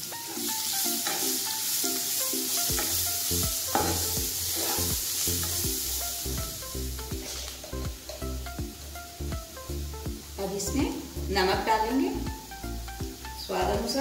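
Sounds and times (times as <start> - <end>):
onions sizzling in oil: 0.0 - 14.0
soft background music: 0.0 - 14.0
metal spatula scraping pan: 0.2 - 1.4, 2.7 - 5.6, 7.2 - 8.3.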